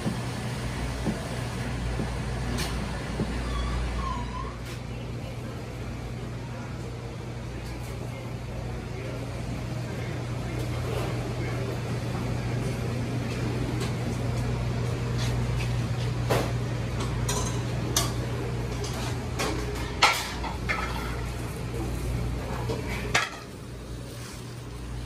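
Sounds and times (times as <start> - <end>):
low hum of kitchen equipment: 0.0 - 25.0
metal pans and utensils clattering: 16.3 - 21.5, 22.5 - 23.6.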